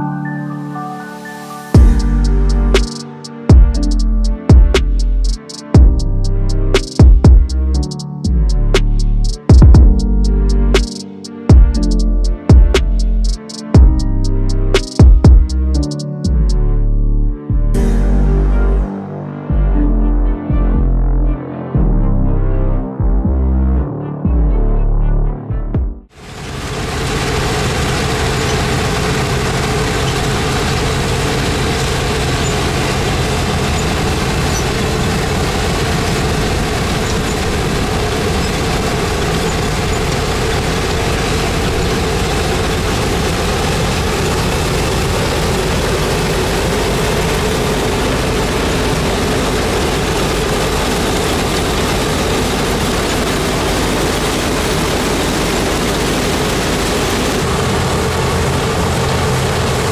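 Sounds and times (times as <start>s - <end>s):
combine harvester running: 1.8s - 14.9s, 26.1s - 59.9s.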